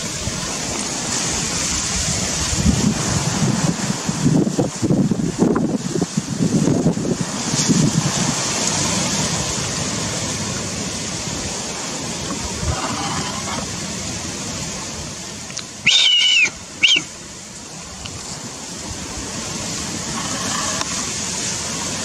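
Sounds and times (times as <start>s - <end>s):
wind buffeting microphone: 0.0s - 15.2s.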